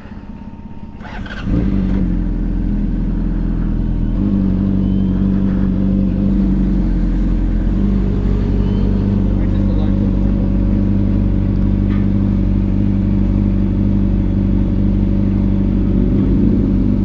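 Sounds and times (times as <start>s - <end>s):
motorcycle engine pulling away: 0.0s - 17.0s.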